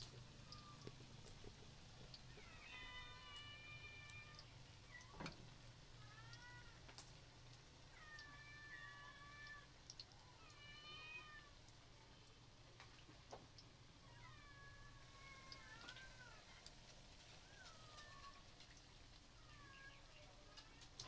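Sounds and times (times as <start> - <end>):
low steady hum: 0.0 - 21.0
cat meowing: 2.3 - 5.4, 6.0 - 6.8, 7.9 - 11.6, 14.0 - 16.6, 17.4 - 18.5.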